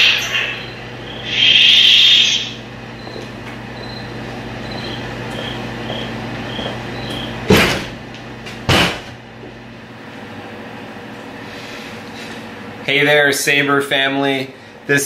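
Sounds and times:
high pulsing tone: 0.0s - 3.2s
lightsaber electronic hum: 0.0s - 8.6s.

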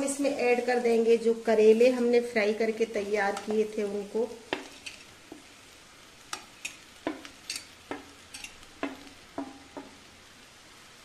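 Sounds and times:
faint sizzle: 0.0s - 11.0s
spoon knocking metal pan: 4.4s - 5.5s, 6.3s - 10.0s.

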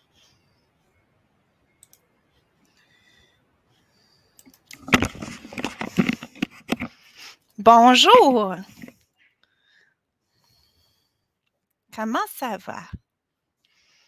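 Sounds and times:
headset microphone being handled: 4.5s - 7.0s, 8.7s - 9.0s.

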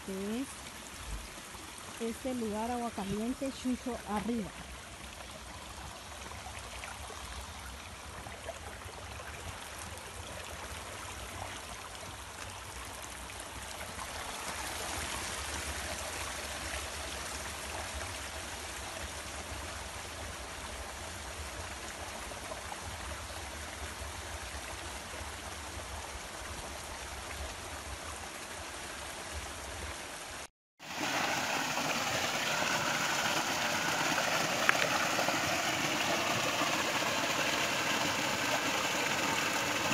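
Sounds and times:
stream running over rocks: 0.0s - 39.9s
water spilling over cascade: 30.8s - 39.9s.

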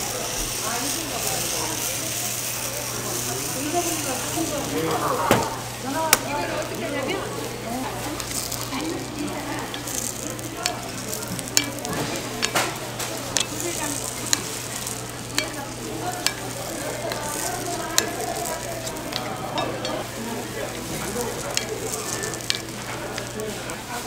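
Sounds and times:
batter sizzling in pan: 0.0s - 24.0s
metal spatula tapping pan: 8.2s - 20.0s, 21.0s - 23.4s.

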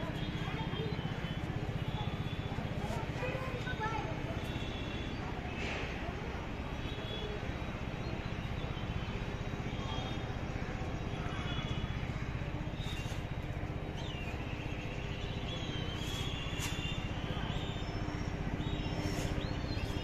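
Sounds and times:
distant traffic: 0.0s - 20.0s
faint high whistling chirps: 12.8s - 20.0s.

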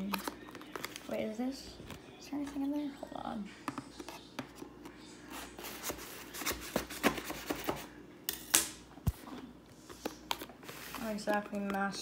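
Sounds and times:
cardboard packaging rustling: 5.3s - 7.8s.

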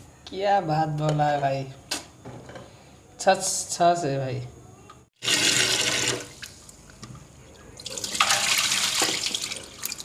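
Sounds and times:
water sloshing and pouring off: 7.8s - 10.0s
tap water splashing into pan: 8.2s - 10.0s.

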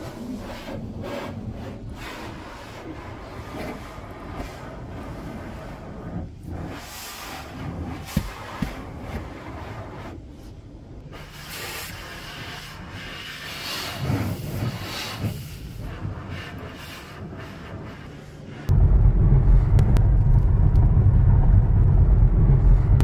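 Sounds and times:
water spraying on car: 0.0s - 20.6s
heavy rumble: 14.0s - 23.0s.

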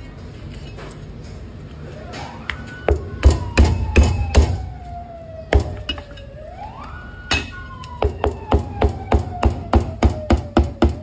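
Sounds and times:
siren-like gliding tone: 2.0s - 9.4s.

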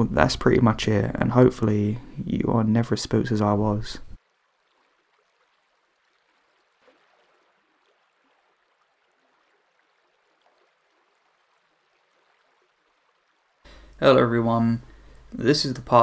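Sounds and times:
faint hiss: 13.7s - 16.0s.

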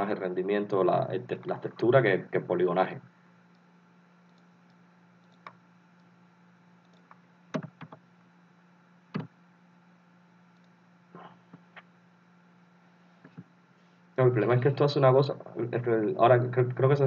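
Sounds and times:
low steady hum: 0.0s - 17.0s
computer mouse and keyboard clicks: 5.2s - 6.1s, 6.8s - 8.0s.

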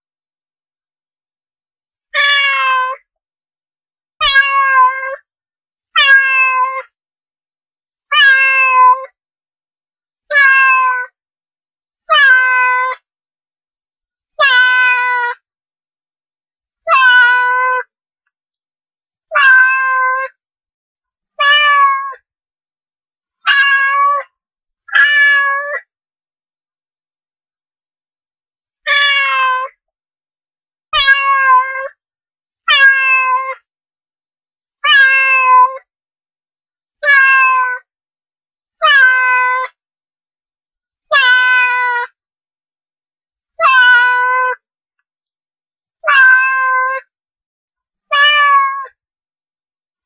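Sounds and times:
cat meowing: 2.2s - 3.0s, 4.2s - 5.2s, 6.0s - 6.9s, 8.1s - 9.1s, 10.3s - 11.1s, 12.1s - 13.0s, 14.4s - 15.4s, 16.9s - 17.9s, 19.3s - 20.4s, 21.4s - 22.2s, 23.4s - 24.3s, 24.9s - 25.9s, 28.9s - 29.8s, 31.0s - 32.0s, 32.7s - 33.6s, 34.8s - 35.8s, 37.0s - 37.8s, 38.8s - 39.8s, 41.1s - 42.1s, 43.6s - 44.6s, 46.0s - 47.1s, 48.1s - 49.0s.

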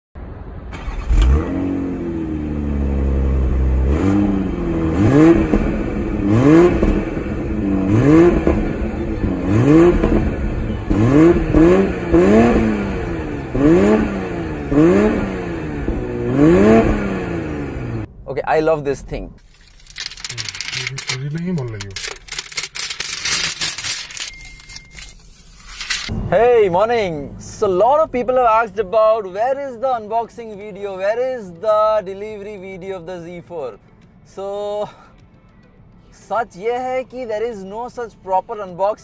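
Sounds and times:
car engine revving: 0.2s - 18.2s.

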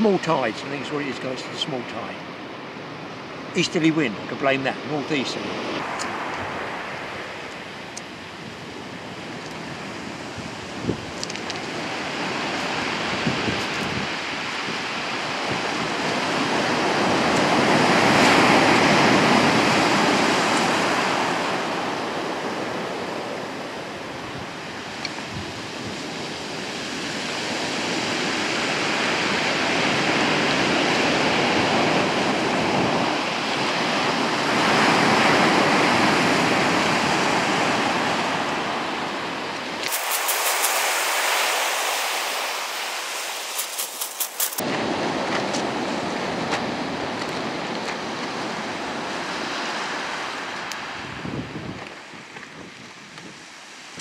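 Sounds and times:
burning kindling crackling: 39.8s - 44.6s
surf breaking on shingle: 39.8s - 44.6s.

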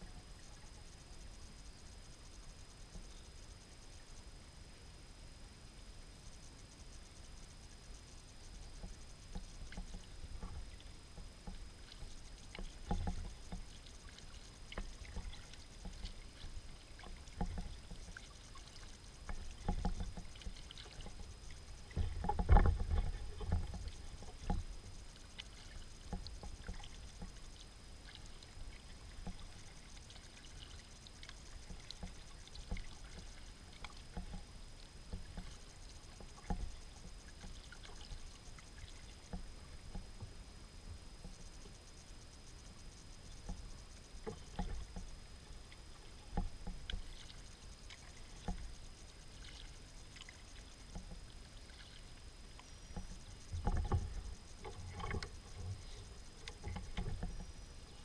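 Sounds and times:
kayak paddle strokes in water: 7.6s - 58.0s
water splashes and drips: 9.3s - 34.5s, 45.6s - 52.2s, 53.6s - 57.3s.

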